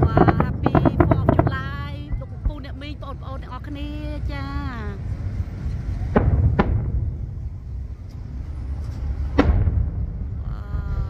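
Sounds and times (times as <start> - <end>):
fireworks bangs: 0.0 - 4.4, 5.0 - 11.0
low rumble: 0.0 - 11.0.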